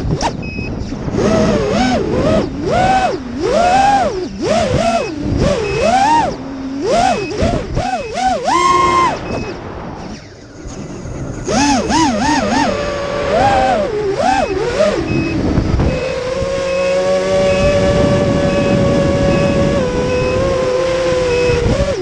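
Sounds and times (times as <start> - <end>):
drone propellers whining: 0.0 - 22.0.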